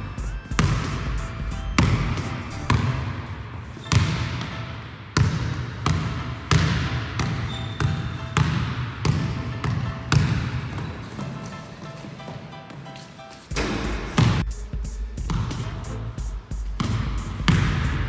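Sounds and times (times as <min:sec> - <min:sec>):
basketball bouncing on wooden floor: 0:00.2 - 0:11.5, 0:13.5 - 0:14.5, 0:15.2 - 0:15.8, 0:16.6 - 0:18.0.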